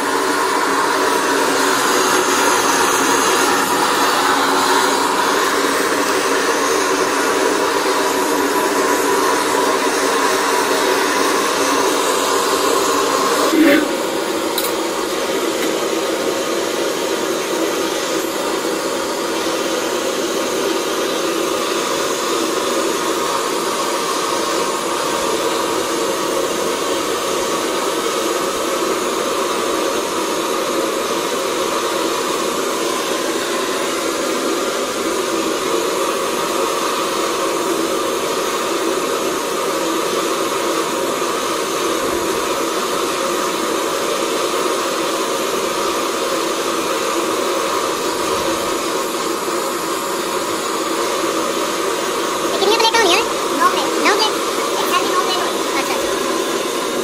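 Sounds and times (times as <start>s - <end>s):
steady mechanical whirring: 0.0s - 43.7s, 46.7s - 57.0s.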